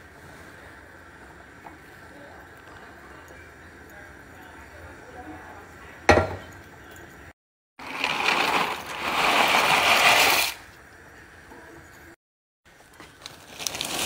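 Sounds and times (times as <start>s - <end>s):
dry pasta rattling into pot: 7.8s - 10.6s.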